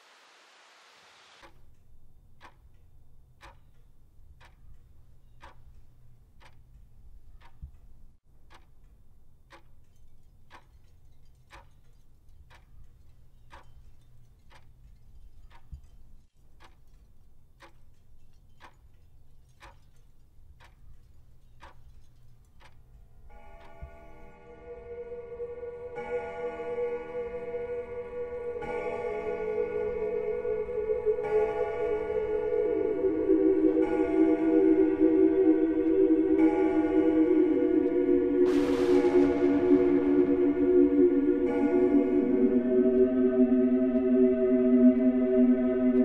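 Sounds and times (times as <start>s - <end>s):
mechanical clock ticking: 1.4s - 24.2s
faint low rumble: 23.8s - 46.0s.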